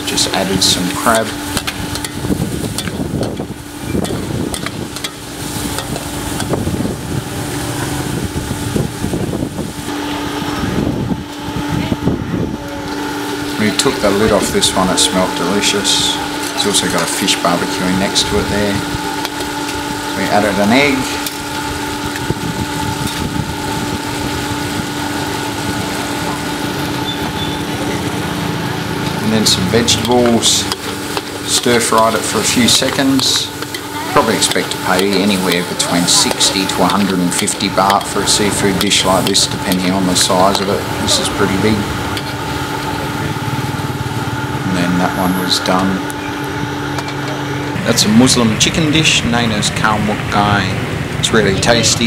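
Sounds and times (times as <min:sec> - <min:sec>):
electric blower humming: 0:00.0 - 0:52.0
food sizzling: 0:00.0 - 0:52.0
metal ladle scraping in wok: 0:28.8 - 0:43.6.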